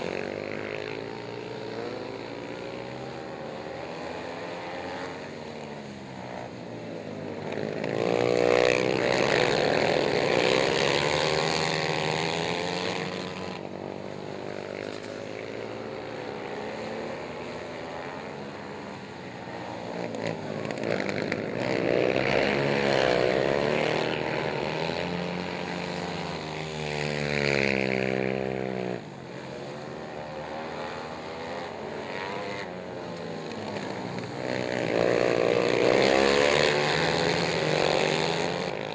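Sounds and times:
quad engines revving: 0.0s - 38.9s.

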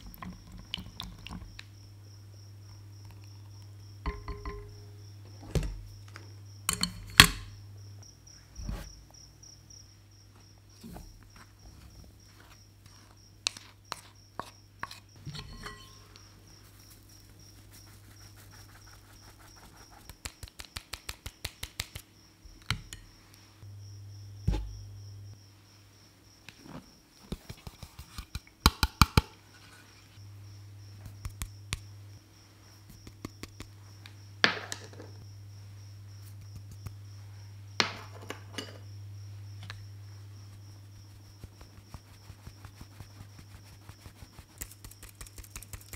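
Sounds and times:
faint steady hum: 0.0s - 20.6s, 22.0s - 45.9s
metal sieve tapped and shaken: 4.0s - 4.9s.

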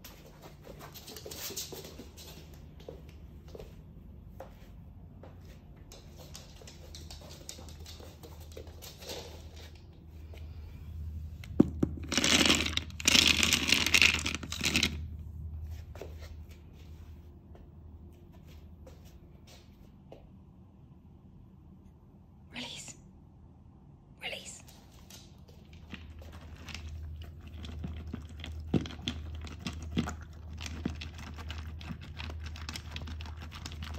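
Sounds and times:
dry kibble rattling into bowl: 11.6s - 15.1s, 25.7s - 33.9s.

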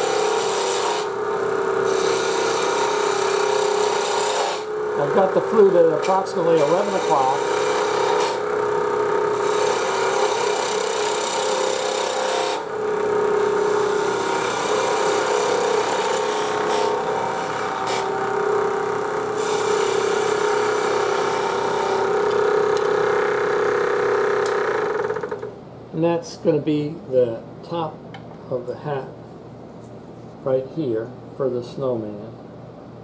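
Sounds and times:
gouge cutting wood on lathe: 0.0s - 25.4s
lathe humming: 0.0s - 25.5s.

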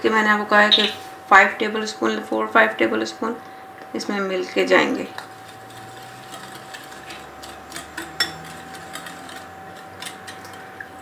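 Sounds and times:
whisk clicking against glass bowl: 5.1s - 11.0s.

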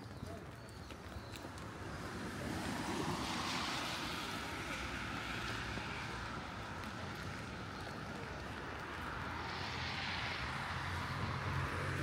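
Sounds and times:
tyres hissing on wet road: 2.1s - 7.7s, 9.1s - 12.0s.

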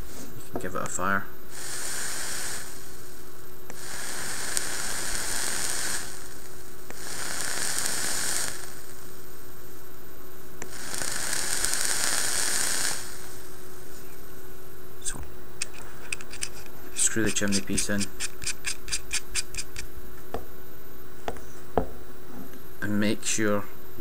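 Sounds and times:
e-liquid sizzling on hot coil: 1.4s - 9.9s, 10.6s - 14.2s, 15.0s - 20.1s.

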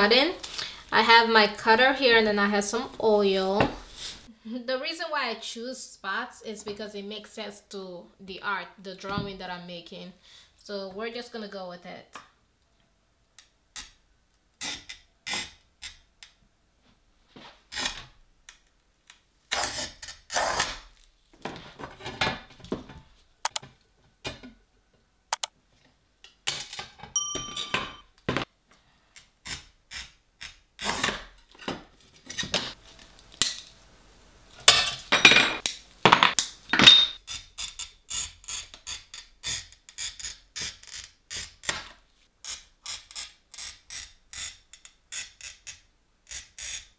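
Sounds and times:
glass ringing: 27.2s - 28.0s, 36.7s - 37.2s.

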